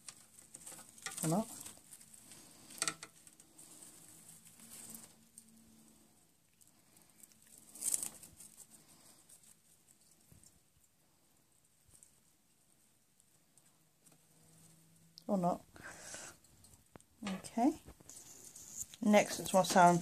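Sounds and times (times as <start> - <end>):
feeding tongs rustling in plastic: 0.0 - 5.6, 17.3 - 20.0.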